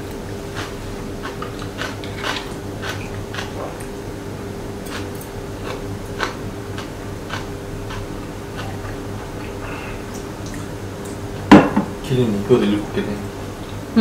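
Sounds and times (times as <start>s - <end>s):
steady low hum: 0.0s - 14.0s
person chewing food: 0.5s - 4.0s, 4.8s - 10.3s.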